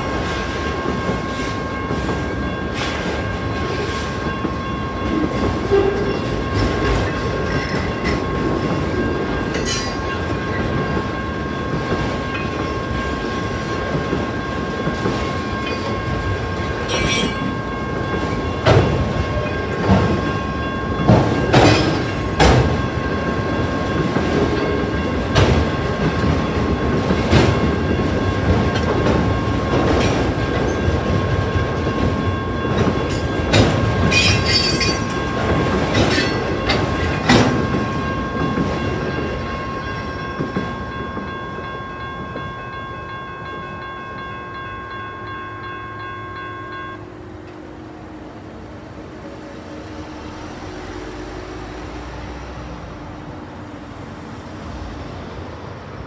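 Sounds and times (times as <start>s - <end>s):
train wheels clattering over rails: 0.0s - 42.5s
crossing bells ringing: 0.0s - 56.0s.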